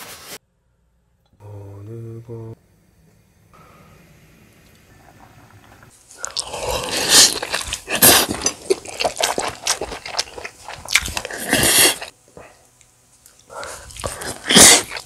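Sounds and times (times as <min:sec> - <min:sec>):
person chewing food: 0:05.0 - 0:15.0.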